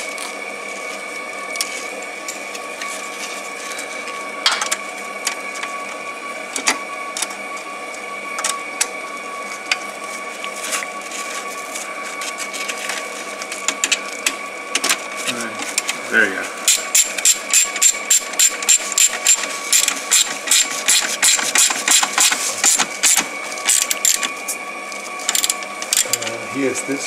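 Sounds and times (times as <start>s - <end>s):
two-tone electrical whine: 0.0s - 27.0s.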